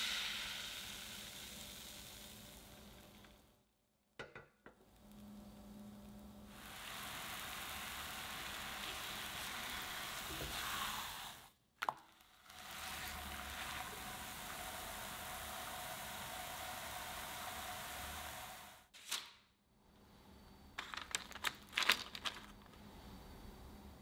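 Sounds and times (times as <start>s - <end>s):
batter sizzling in a frying pan: 0.0s - 3.5s, 4.8s - 11.5s, 12.1s - 18.9s.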